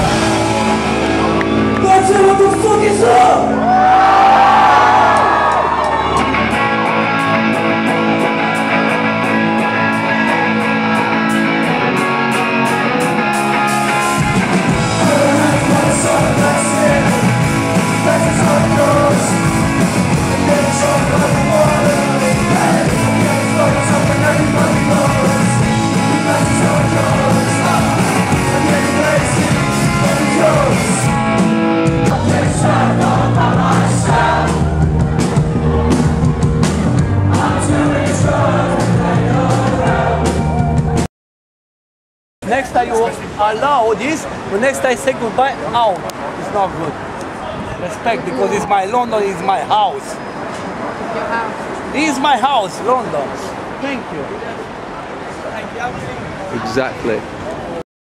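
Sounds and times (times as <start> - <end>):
live rock band: 0.0 - 41.1
person singing: 14.7 - 31.2.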